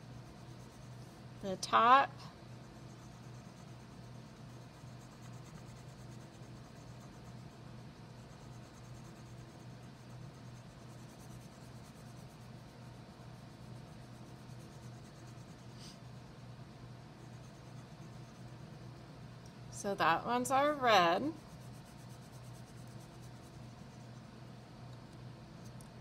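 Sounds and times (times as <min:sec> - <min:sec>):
steady low hum: 0:00.0 - 0:26.0
crayon scribbling on paper: 0:02.6 - 0:16.1, 0:17.2 - 0:19.0, 0:20.7 - 0:24.2.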